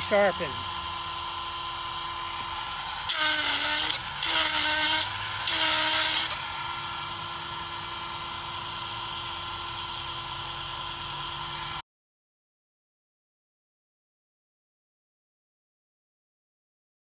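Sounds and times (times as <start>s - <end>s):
grinder motor humming: 0.0s - 11.8s
stone grinding hiss on chain tooth: 3.1s - 6.5s.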